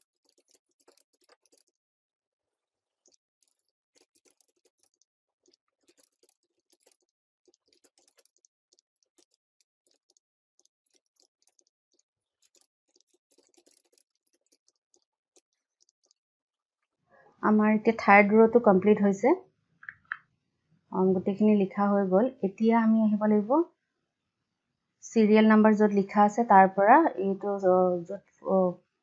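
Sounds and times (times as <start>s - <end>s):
keyboard typing: 0.0s - 1.7s, 3.0s - 16.2s.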